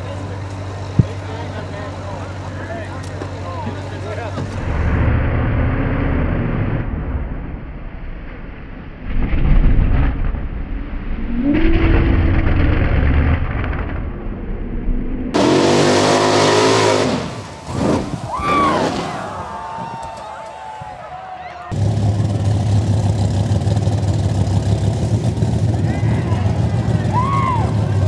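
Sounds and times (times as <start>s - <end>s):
engine revving hard: 15.4s - 19.3s.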